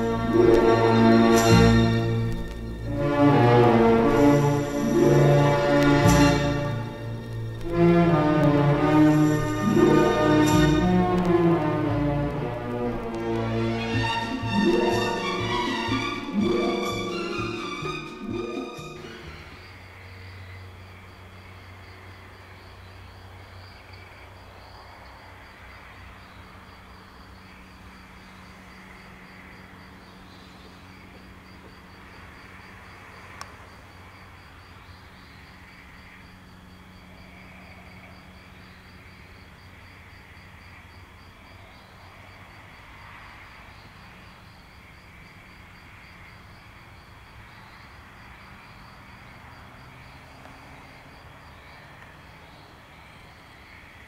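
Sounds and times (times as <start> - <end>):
low steady hum: 0.0 - 20.7
crickets chirping: 0.0 - 54.0.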